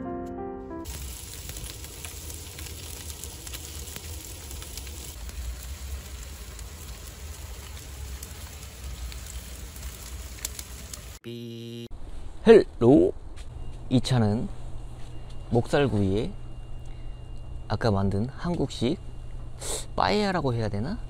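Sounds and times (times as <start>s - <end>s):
charcoal crackling: 0.8s - 11.2s
meat and fish sizzling on foil: 0.8s - 11.2s.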